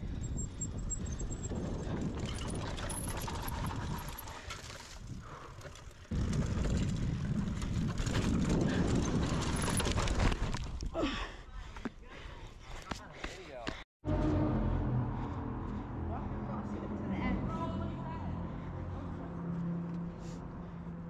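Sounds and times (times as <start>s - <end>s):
wind on microphone: 0.0s - 4.2s, 6.1s - 11.0s
bike tyres rumbling: 0.0s - 11.0s
bike rattling over bumps: 0.2s - 10.9s.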